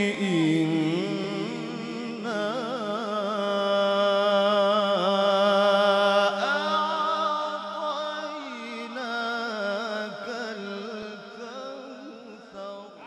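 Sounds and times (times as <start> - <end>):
man reciting melodically: 0.0 - 13.0.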